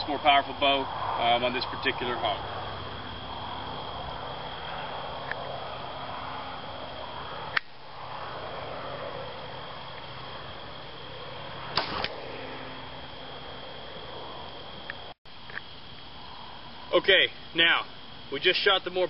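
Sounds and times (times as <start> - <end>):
steady background hum: 0.0 - 19.0
sharp click: 7.5 - 7.7, 11.8 - 12.2
bow string snapping: 11.7 - 12.2
arrow hitting carcass: 11.7 - 12.7.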